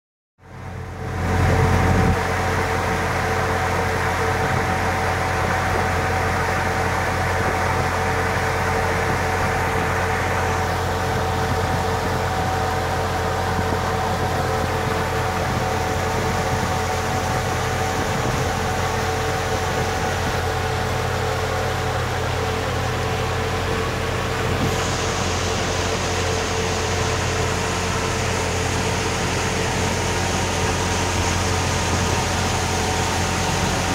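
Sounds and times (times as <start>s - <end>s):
boat motor drone: 0.4s - 33.9s
wind: 0.4s - 33.9s
water rushing: 0.8s - 33.9s.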